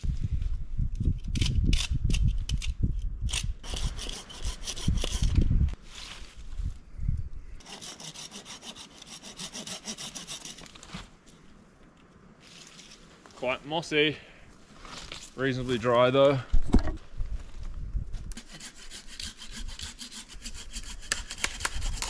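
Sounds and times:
hand saw cutting branch: 0:03.6 - 0:05.4, 0:07.6 - 0:11.0, 0:18.2 - 0:22.0.

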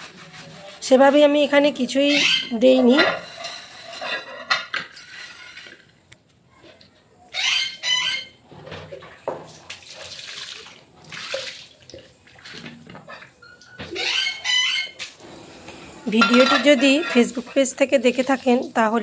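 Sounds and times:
water splashing on metal pan: 0:09.3 - 0:12.8, 0:16.1 - 0:19.0.

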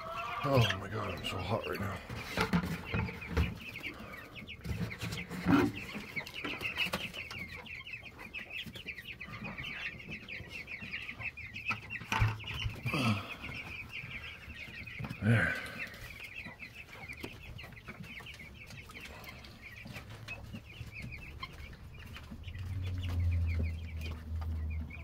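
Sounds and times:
chicks and ducklings peeping: 0:00.0 - 0:25.0.

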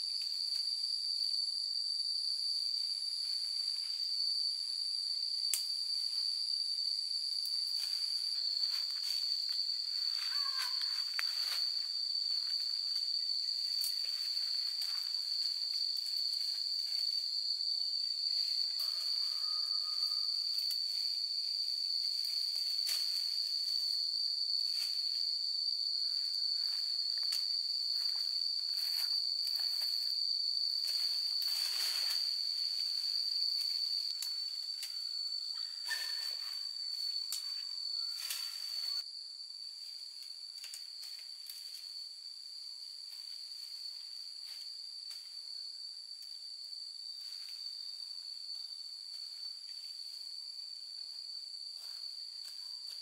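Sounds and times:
insects droning: 0:00.0 - 0:53.0.

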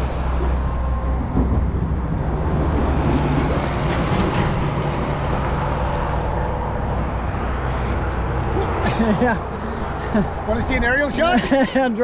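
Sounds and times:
highway traffic: 0:00.0 - 0:12.0
semi-truck driving: 0:00.0 - 0:12.0.

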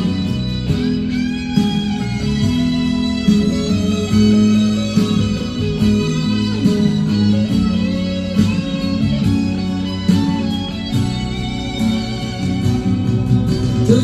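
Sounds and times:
bass: 0:00.0 - 0:14.0
electric guitar melody: 0:00.0 - 0:14.0
steady beat: 0:00.0 - 0:14.0.

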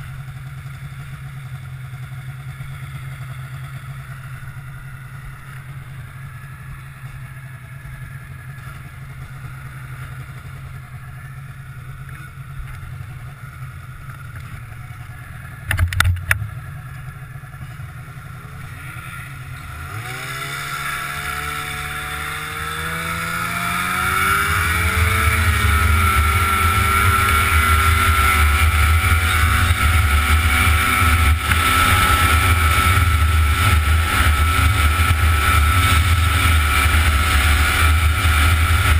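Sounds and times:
snowmobile engine: 0:00.0 - 0:38.9
rushing wind: 0:19.0 - 0:38.9.

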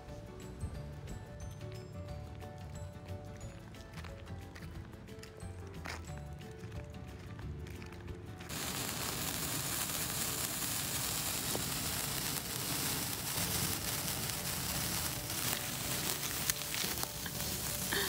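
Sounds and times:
sparkler crackles: 0:08.5 - 0:18.0
sparklers fizzing: 0:08.5 - 0:18.0.

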